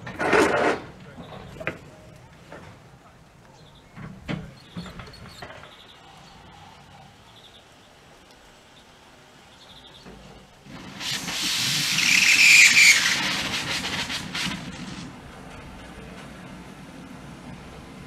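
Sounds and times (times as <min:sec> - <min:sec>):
steam locomotive hissing steam: 0:10.6 - 0:18.0.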